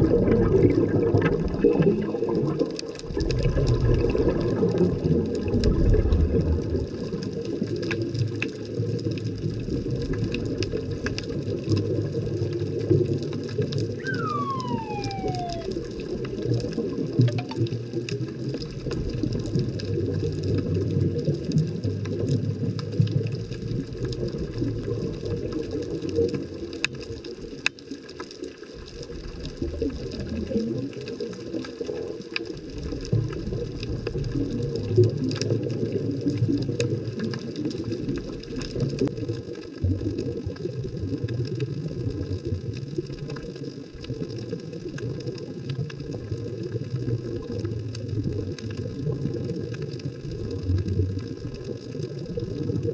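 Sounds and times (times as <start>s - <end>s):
underwater rush of moving water: 0.0s - 52.9s
faint clicks: 14.0s - 15.9s.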